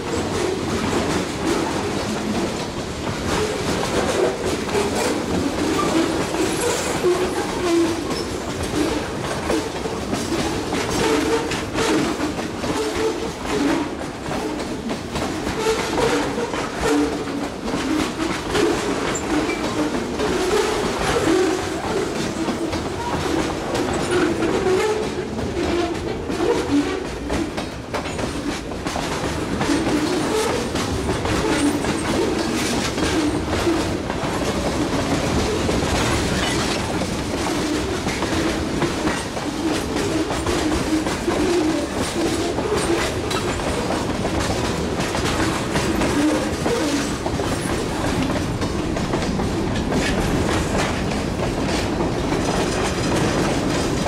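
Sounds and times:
steel wheels rumbling on rail: 0:00.0 - 0:54.0
wheels clicking over rail joints: 0:00.0 - 0:54.0.

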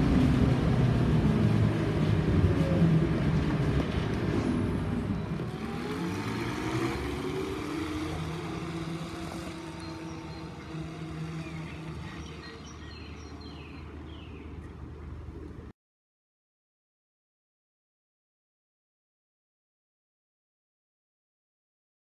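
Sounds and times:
trolleybus electric drive whine: 0:00.0 - 0:15.7.

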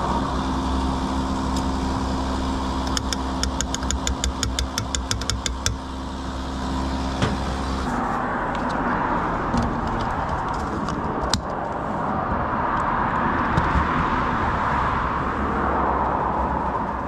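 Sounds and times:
car engine running: 0:00.0 - 0:14.5
tyre and road noise: 0:00.0 - 0:17.0
sharp click: 0:02.9 - 0:05.8.

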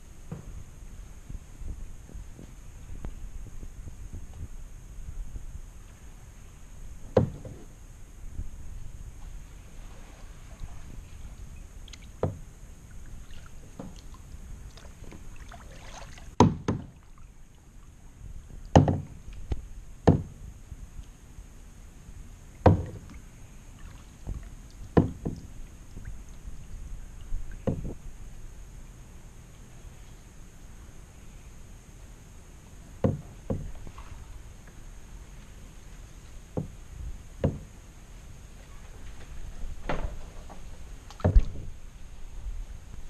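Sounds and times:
low background noise: 0:00.0 - 0:43.0
kayak paddle knocks: 0:07.1 - 0:07.7, 0:11.9 - 0:12.4, 0:16.4 - 0:17.0, 0:18.7 - 0:20.4, 0:22.6 - 0:23.2, 0:24.2 - 0:26.1, 0:27.5 - 0:28.0, 0:33.0 - 0:34.1, 0:36.6 - 0:36.8, 0:37.4 - 0:37.8, 0:39.8 - 0:41.7.

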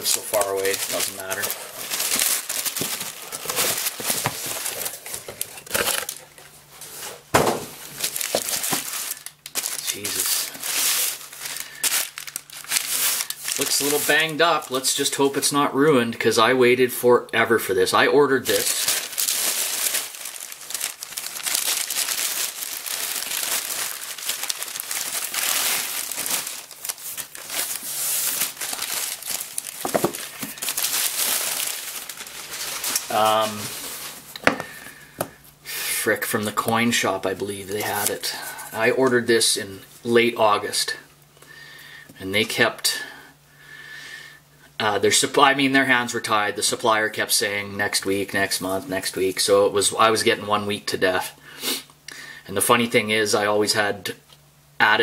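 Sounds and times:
paper and cardboard rustling: 0:00.0 - 0:14.8, 0:18.4 - 0:34.6.

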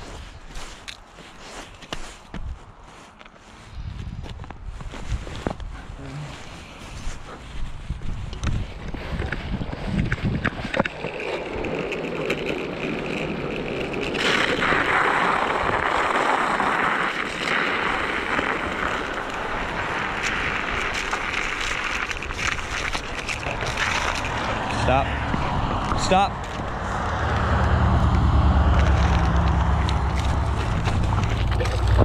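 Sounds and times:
wind on microphone: 0:03.6 - 0:32.0
tyres rolling on gritty asphalt: 0:08.3 - 0:32.0.

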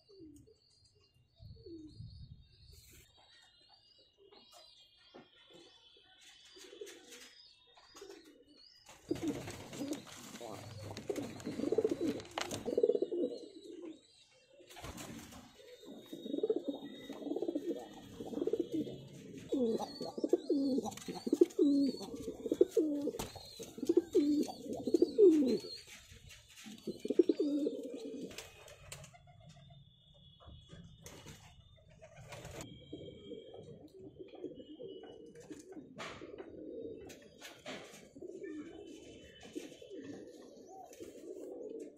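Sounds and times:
pigeons cooing: 0:08.0 - 0:28.6, 0:32.1 - 0:41.9.

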